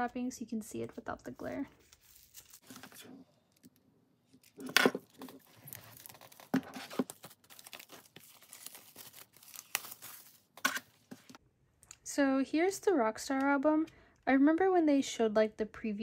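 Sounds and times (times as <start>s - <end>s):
plastic shrink wrap crinkling: 4.3s - 11.4s
plastic tearing: 4.4s - 10.9s.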